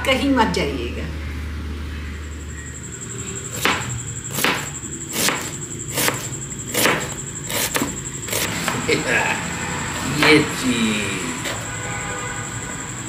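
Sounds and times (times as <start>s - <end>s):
knife chopping on cutting board: 3.6s - 8.9s.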